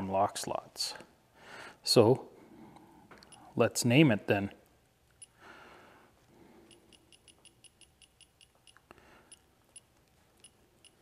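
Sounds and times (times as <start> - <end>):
touchscreen key-press ticks: 6.7 - 11.0.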